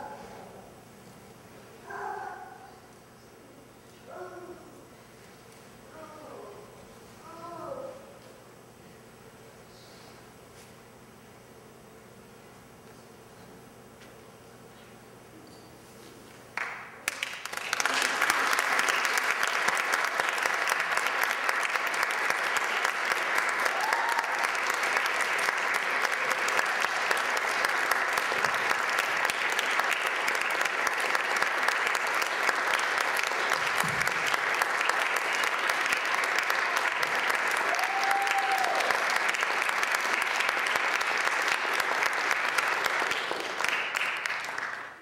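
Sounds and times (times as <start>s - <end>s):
audience applauding: 16.6s - 45.0s.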